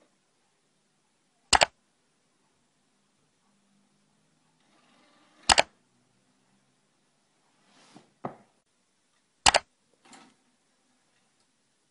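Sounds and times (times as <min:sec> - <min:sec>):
sharp double clicks: 0:01.5 - 0:01.8, 0:05.5 - 0:05.8, 0:09.4 - 0:09.7
soft rustle: 0:07.4 - 0:08.2.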